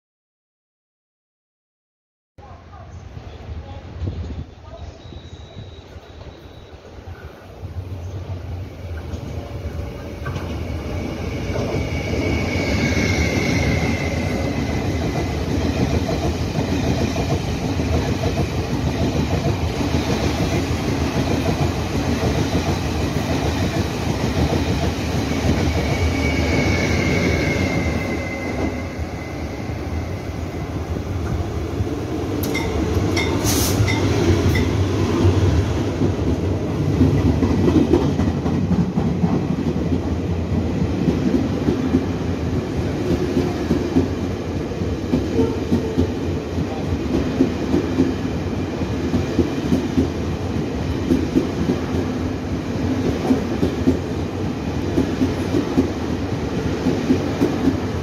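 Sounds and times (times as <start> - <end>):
train wheels rumbling on rail: 3.4 - 58.0
sharp clicks of passing locomotive: 10.2 - 10.6, 32.3 - 34.8, 49.0 - 52.2, 52.9 - 58.0.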